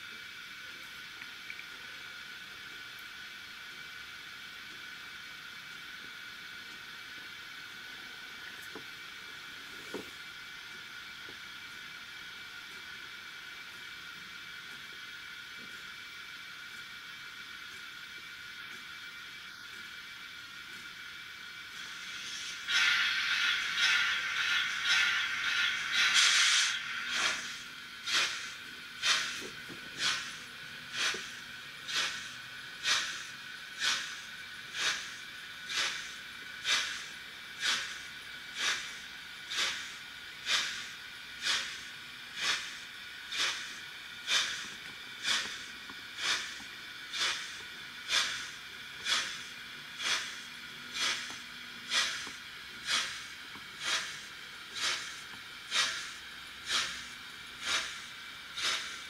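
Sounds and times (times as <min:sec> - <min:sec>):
steam exhaust chuffs from speaker: 0:16.2 - 0:59.0.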